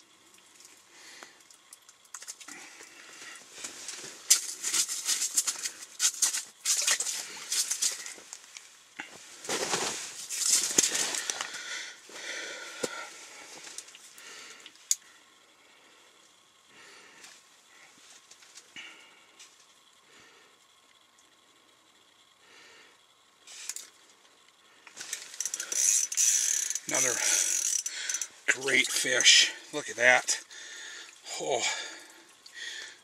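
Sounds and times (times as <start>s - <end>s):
fabric rustling and crinkling: 9.1s - 11.3s.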